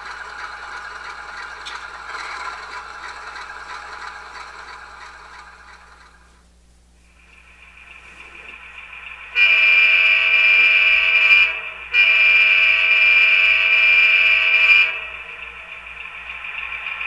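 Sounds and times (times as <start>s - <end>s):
model diesel engine idling: 0.0s - 6.5s
model train air horn blasts: 9.3s - 15.4s.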